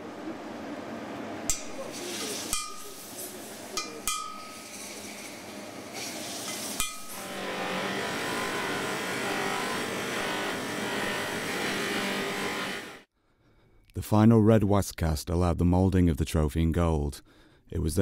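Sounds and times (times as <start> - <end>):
hammer striking steel chisel: 2.5 - 2.9, 3.8 - 4.7, 6.8 - 7.2.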